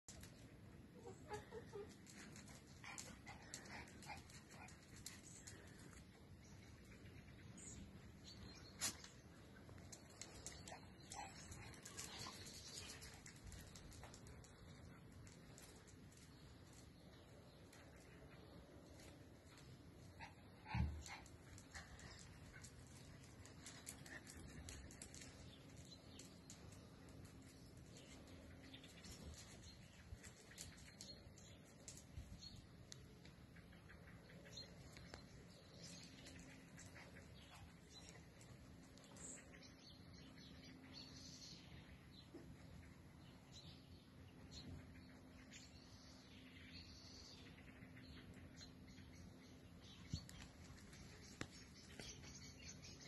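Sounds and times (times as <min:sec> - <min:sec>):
small dog whining: 0:01.0 - 0:02.3.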